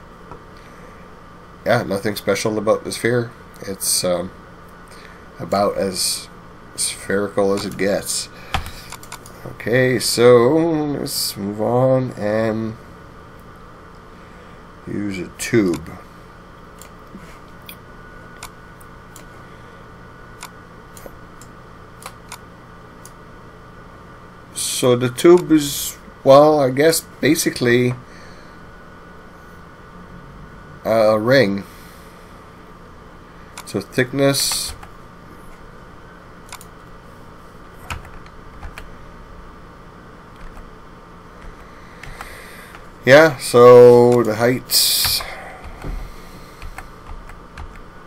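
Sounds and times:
low computer hum: 0.0s - 48.0s
computer mouse clicks: 8.6s - 9.3s, 36.5s - 36.7s.

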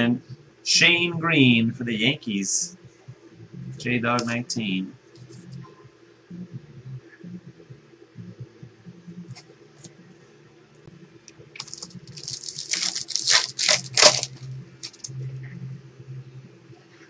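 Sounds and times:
plastic wrapper crinkling and tearing: 11.6s - 15.1s.

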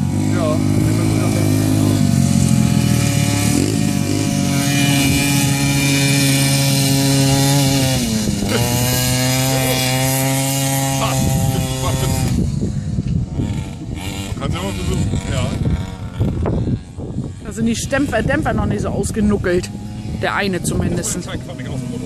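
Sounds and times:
racing engine revving high: 0.0s - 12.5s.

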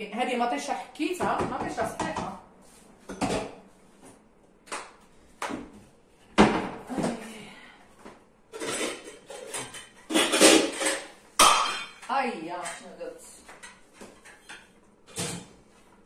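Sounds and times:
dishes and utensils clattering: 8.5s - 15.6s.

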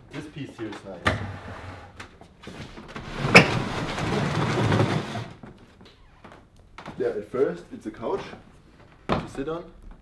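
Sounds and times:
furniture scraping on wooden floor: 1.2s - 5.4s.

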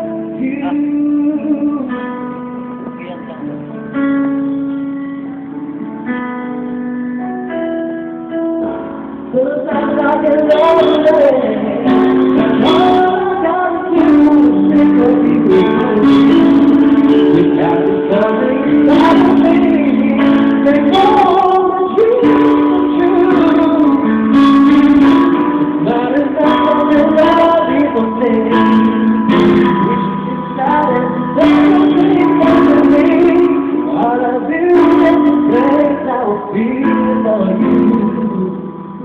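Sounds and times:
man singing into a microphone: 0.0s - 4.4s, 9.2s - 39.0s
instrumental backing: 0.0s - 39.0s.

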